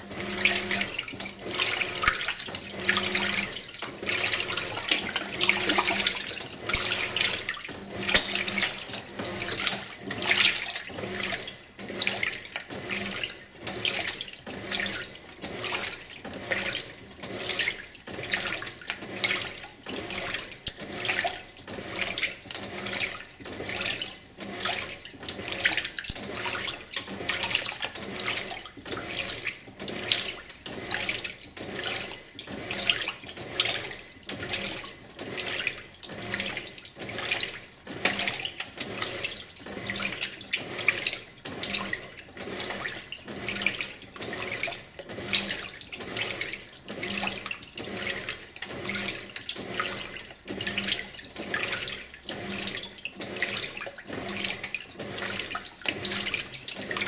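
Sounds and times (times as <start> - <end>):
washing machine swishing water: 0.0 - 57.0.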